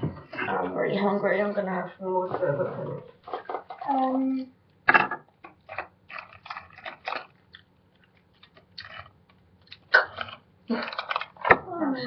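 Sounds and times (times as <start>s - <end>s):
person chewing crunchy food: 5.5s - 11.5s.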